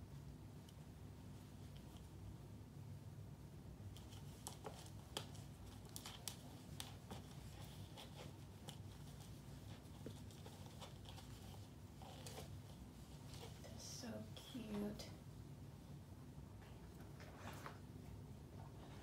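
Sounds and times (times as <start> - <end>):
low steady hum: 0.0 - 19.0
kitten claws scratching plastic bowl: 3.9 - 13.7.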